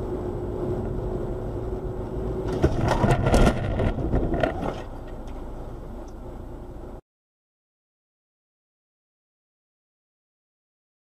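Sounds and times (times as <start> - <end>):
road and engine noise: 0.0 - 7.0
clatter: 2.4 - 5.4
car impact crunching and scraping: 2.4 - 5.5.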